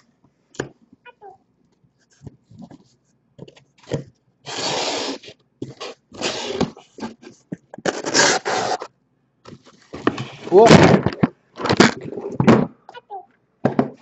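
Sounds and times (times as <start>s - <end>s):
cardboard scraping and rustling: 2.1s - 8.9s, 9.5s - 12.6s.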